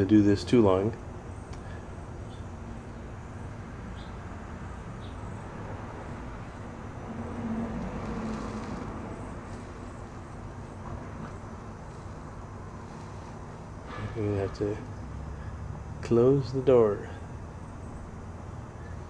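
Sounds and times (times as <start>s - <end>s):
outdoor background noise: 0.0s - 19.0s
vehicle passing: 3.0s - 16.0s.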